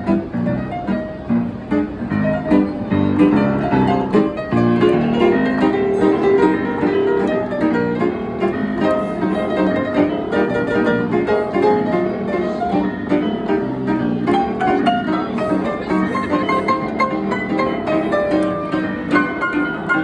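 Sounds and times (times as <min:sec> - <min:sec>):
upright piano played four-hands: 0:00.0 - 0:20.0.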